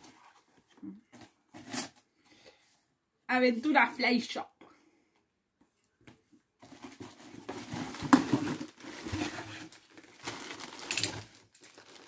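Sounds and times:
plastic wrapping crinkling: 6.7s - 12.0s
sharp plastic crackle: 7.6s - 12.0s.

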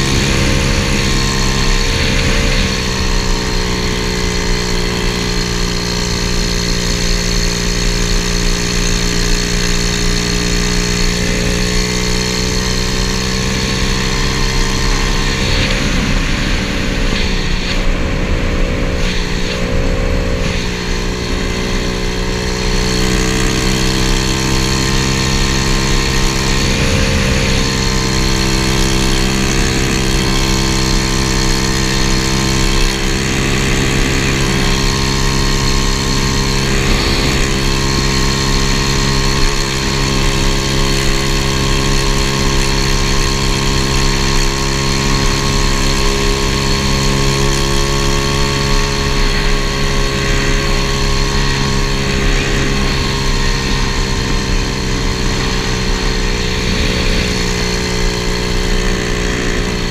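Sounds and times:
motorbike engine running: 0.0s - 59.9s
wind rushing over microphone: 13.5s - 22.0s.

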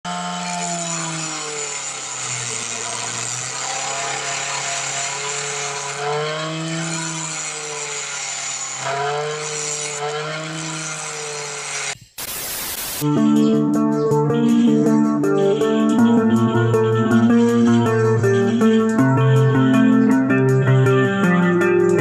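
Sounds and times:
grinding wheel on metal: 0.0s - 12.0s
grinder motor whine: 0.0s - 13.0s.

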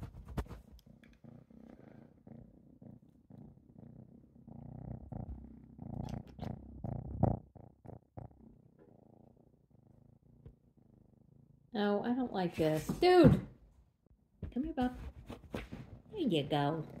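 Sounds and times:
cat purring: 0.0s - 17.0s.

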